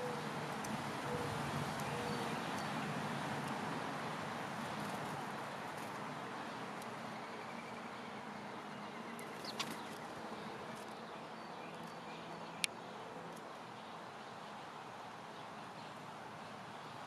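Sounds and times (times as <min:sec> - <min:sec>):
distant bird calls: 0:00.0 - 0:00.3, 0:01.0 - 0:02.9, 0:07.0 - 0:12.8
outdoor background hiss: 0:00.0 - 0:17.0.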